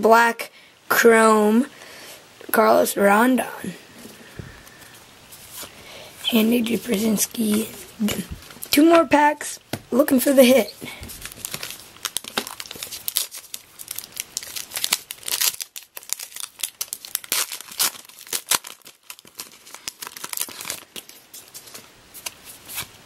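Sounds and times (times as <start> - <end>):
card pack wrapper tearing: 11.0 - 22.9.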